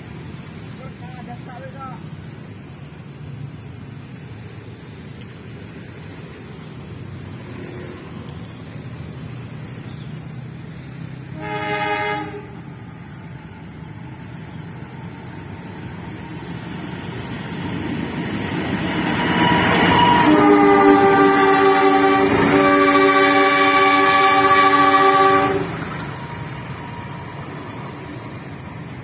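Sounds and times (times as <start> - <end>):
locomotive engine and wheel noise: 0.0 - 29.0
locomotive horn blast: 11.3 - 12.7, 19.5 - 25.9.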